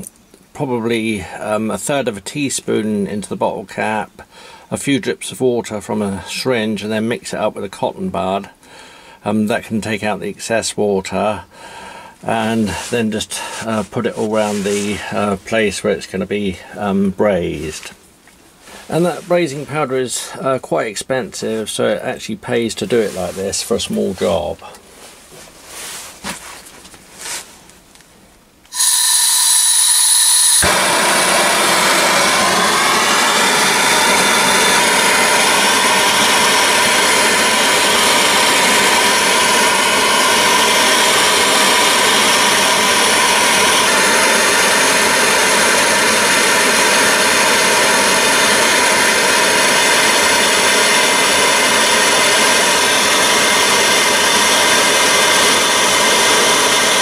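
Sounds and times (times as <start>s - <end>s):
rush of burning gas: 28.7s - 57.0s
torch hiss with high whistle: 28.7s - 57.0s.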